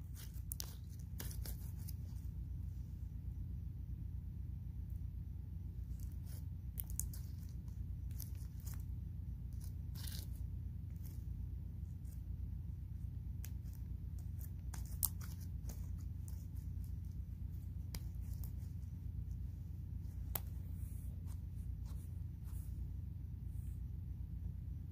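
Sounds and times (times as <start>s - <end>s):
steady low hum: 0.0s - 24.9s
small clicks and crackles: 5.9s - 11.3s, 13.4s - 18.8s.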